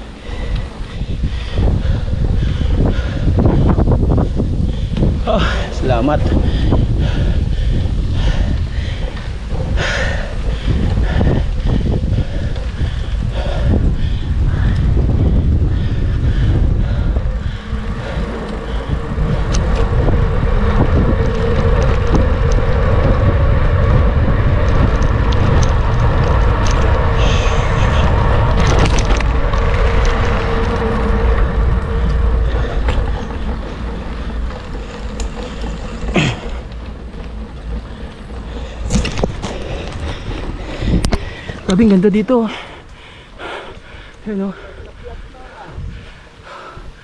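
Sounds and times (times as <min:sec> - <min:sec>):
steady pitched hum: 0:00.0 - 0:47.0
wind buffeting microphone: 0:00.0 - 0:47.0
scattered clicks: 0:18.0 - 0:42.2.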